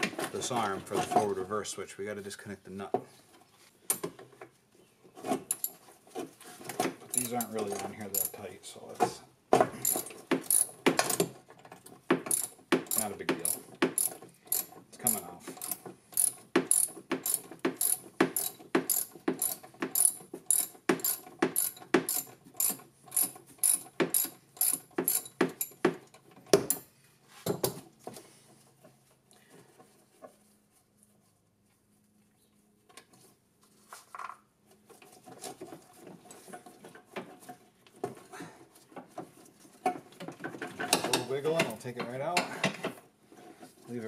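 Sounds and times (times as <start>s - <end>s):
ratchet wrench clicking: 9.8s - 10.8s, 12.3s - 25.8s
faint handling sounds: 26.9s - 40.1s.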